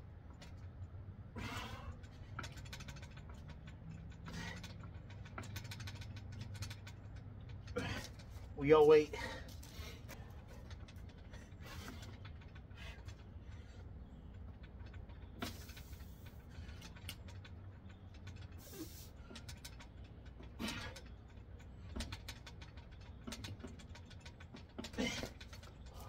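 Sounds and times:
low steady rumble: 0:00.0 - 0:26.0
metal station creaks and clicks: 0:00.2 - 0:26.0
sharp breaths: 0:01.4 - 0:02.9, 0:04.2 - 0:06.1.

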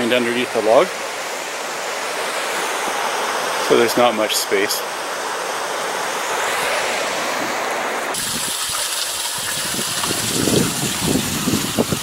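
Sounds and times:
river rushing: 0:00.0 - 0:11.9
wind rumbling on microphone: 0:06.3 - 0:12.0.

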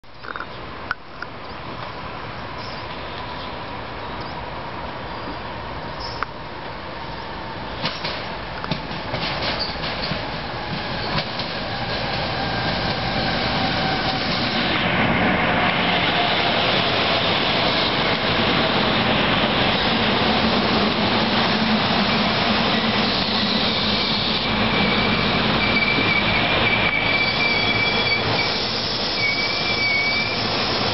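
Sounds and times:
high brake squeal: 0:05.1 - 0:06.2, 0:09.6 - 0:10.2, 0:22.0 - 0:30.9
train wheels on rails: 0:05.2 - 0:30.9.

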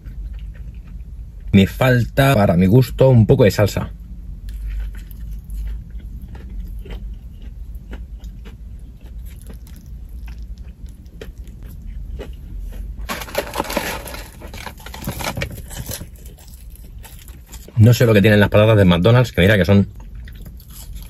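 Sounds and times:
person chewing crunchy food: 0:00.0 - 0:01.5, 0:04.4 - 0:17.8, 0:19.9 - 0:21.0
low steady rumble: 0:00.0 - 0:21.0
crackling rustle: 0:12.7 - 0:17.7.

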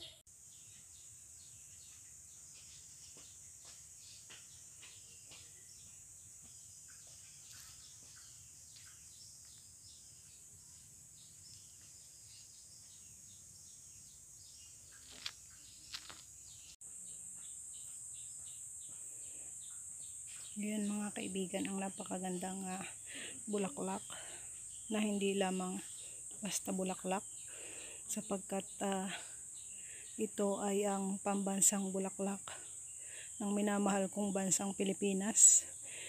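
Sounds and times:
insects chirring: 0:00.0 - 0:36.0
bird chirps: 0:04.1 - 0:19.0.

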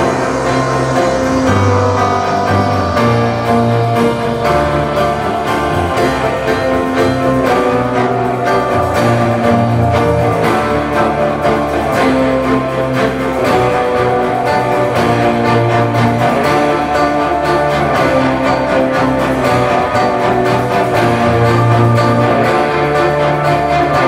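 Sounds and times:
piano music over loudspeakers: 0:00.0 - 0:24.0.

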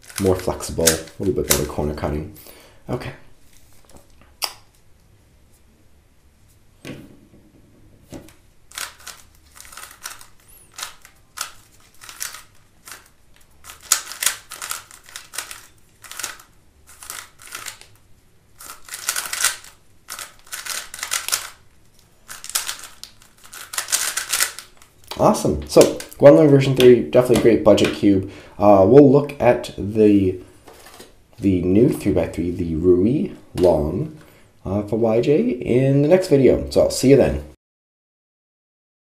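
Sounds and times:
puzzle cube layers clacking: 0:00.0 - 0:01.8, 0:08.7 - 0:18.0, 0:18.6 - 0:21.6, 0:22.2 - 0:28.0.

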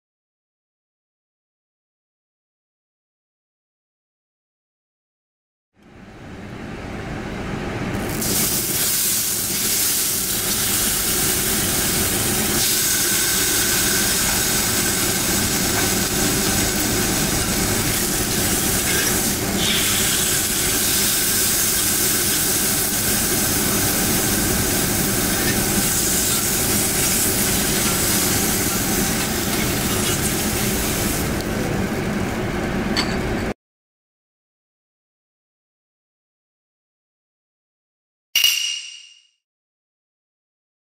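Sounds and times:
meat sizzling on a grill: 0:08.0 - 0:31.4.

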